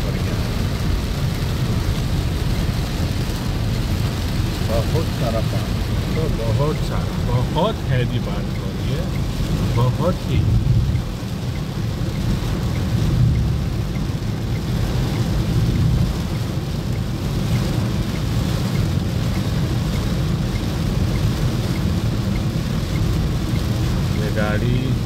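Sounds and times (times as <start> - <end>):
heavy rain on car roof: 0.0 - 25.0.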